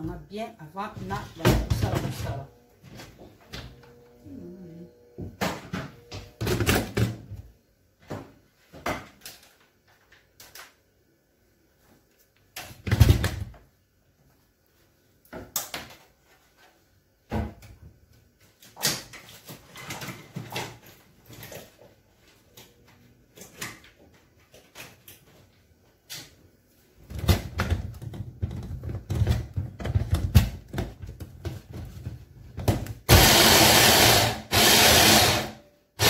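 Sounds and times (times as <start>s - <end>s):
kitchen items knocking and clattering: 1.0s - 2.5s, 12.6s - 13.6s, 27.0s - 33.2s.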